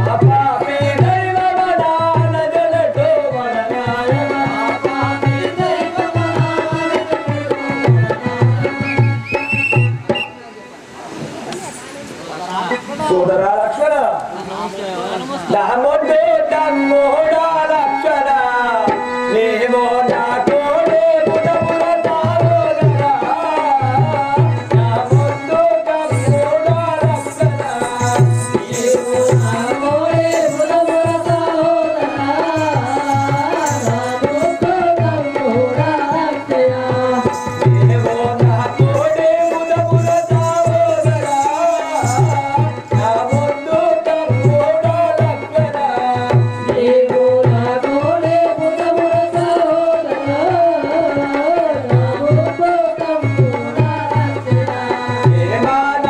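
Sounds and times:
person singing wavering melody: 0:20.2 - 0:56.0.

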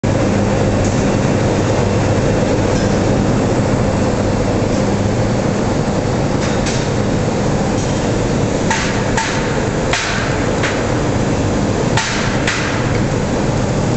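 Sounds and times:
industrial hum and rumble: 0:00.0 - 0:13.9
sharp knocks: 0:08.7 - 0:10.9, 0:12.0 - 0:13.0.

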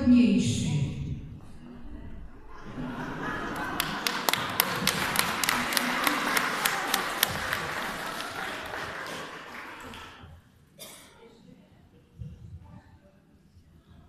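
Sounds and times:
crowd noise hiss: 0:02.4 - 0:11.4.

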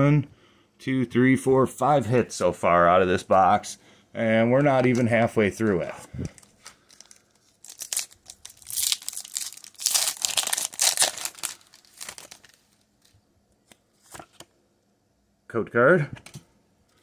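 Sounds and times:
foil wrapper crinkling and tearing: 0:06.3 - 0:13.1.

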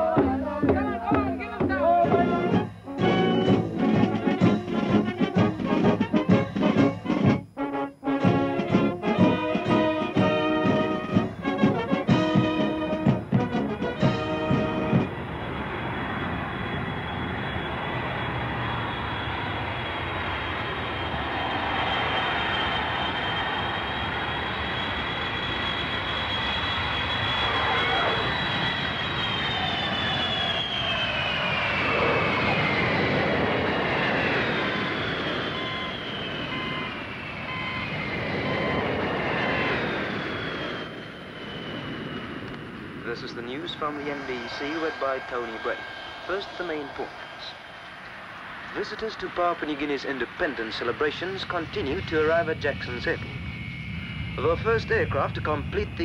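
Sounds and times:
engine drone with high whine: 0:00.0 - 0:56.0
jet aircraft flying past: 0:00.0 - 0:56.0
faint beep: 0:35.5 - 0:38.8.

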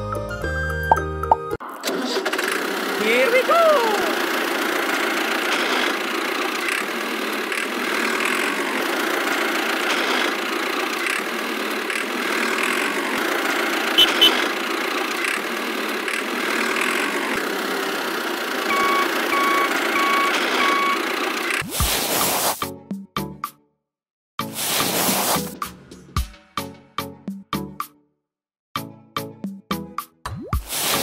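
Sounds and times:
tractor engine idling: 0:01.9 - 0:21.6
reversing beeper: 0:18.7 - 0:21.0.

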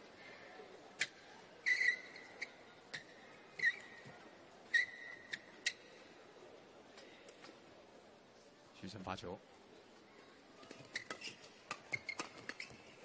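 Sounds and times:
shoes squeaking on court floor: 0:01.0 - 0:05.9, 0:10.6 - 0:13.0.

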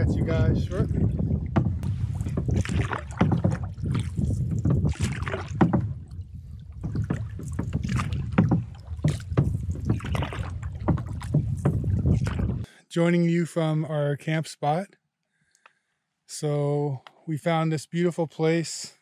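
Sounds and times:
water slapping against canoe hull: 0:00.0 - 0:12.7
wind buffeting microphone: 0:00.0 - 0:12.7.

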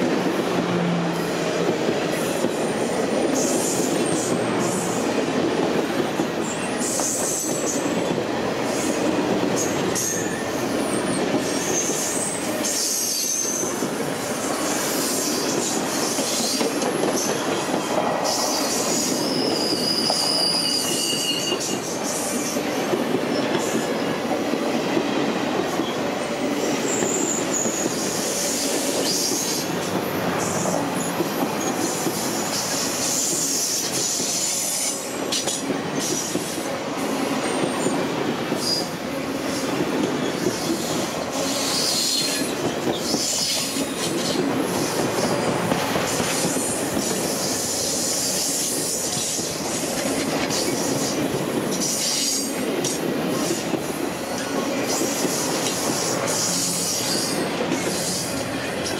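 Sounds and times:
train wheels rumbling on rails: 0:00.0 - 0:58.9
high wheel squeals: 0:18.3 - 0:22.0.

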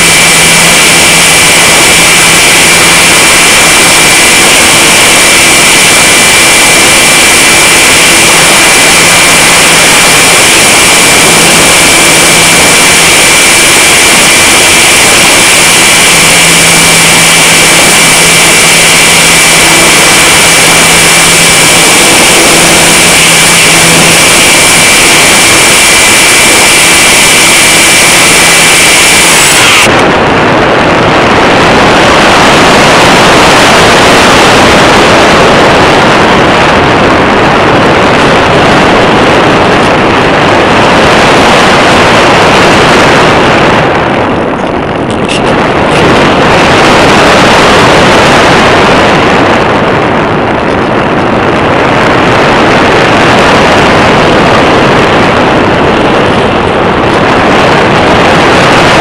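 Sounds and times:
loud wind rushing over microphone: 0:00.0 - 0:59.0.

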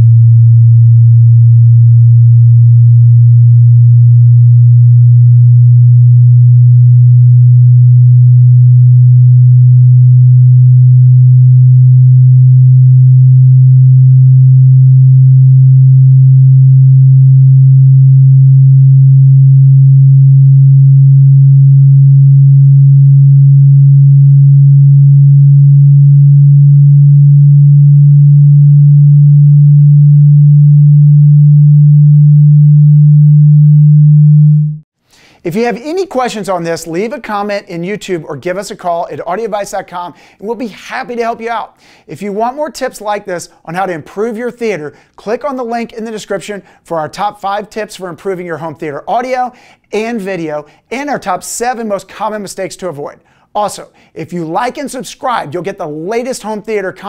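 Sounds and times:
sine test tone rising: 0:00.0 - 0:34.9.

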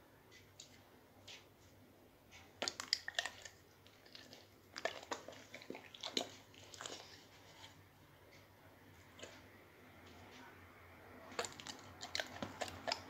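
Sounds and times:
dog chewing food: 0:02.4 - 0:07.8, 0:11.2 - 0:13.0.

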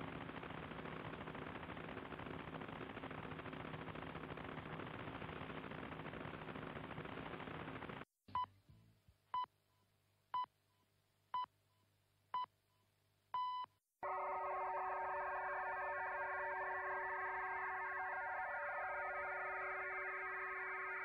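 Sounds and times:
dense buzzing radio signal: 0:14.0 - 0:21.0
dense chord of steady tones: 0:14.0 - 0:21.0.

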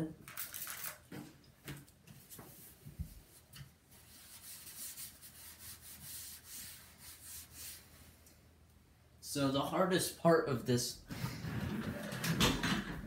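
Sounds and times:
paper towel rubbing plastic: 0:03.3 - 0:08.0.

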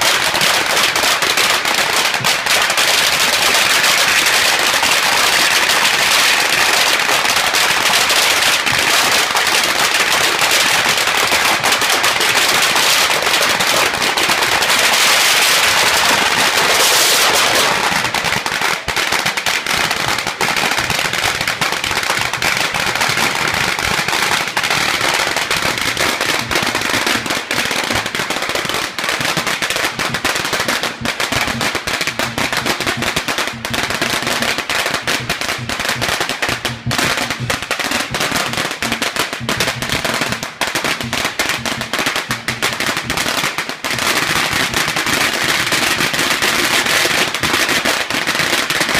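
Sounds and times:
firecrackers going off: 0:00.0 - 0:48.9.

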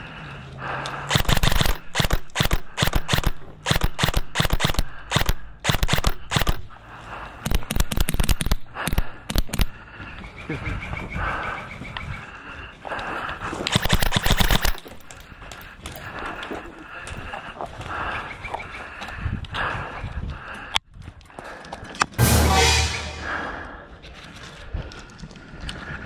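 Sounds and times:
airsoft guns firing: 0:01.1 - 0:06.7, 0:13.7 - 0:14.8.

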